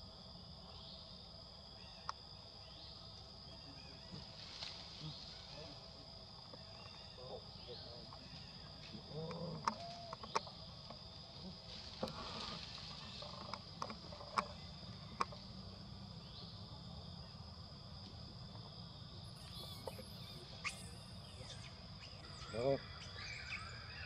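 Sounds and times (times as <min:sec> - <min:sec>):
insects droning: 0:00.0 - 0:24.0.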